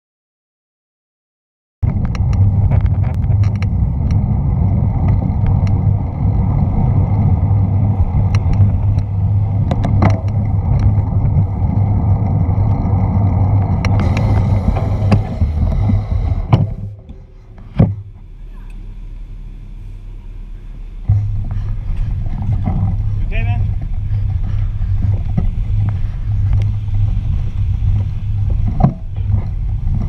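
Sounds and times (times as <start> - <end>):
wind on camera microphone: 1.8 - 18.2, 21.1 - 30.0
road rumble: 1.8 - 30.0
bicycle clicks and rattles: 1.9 - 17.8.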